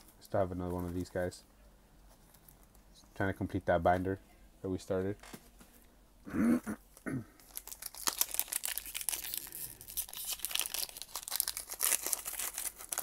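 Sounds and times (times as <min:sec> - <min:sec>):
foil wrapper crinkling: 0:07.4 - 0:13.0.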